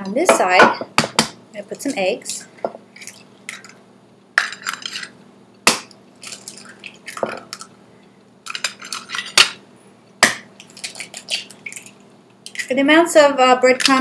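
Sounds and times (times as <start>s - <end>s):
eggshells cracking on ceramic dish: 4.4s - 7.7s, 8.4s - 9.6s, 10.2s - 12.8s.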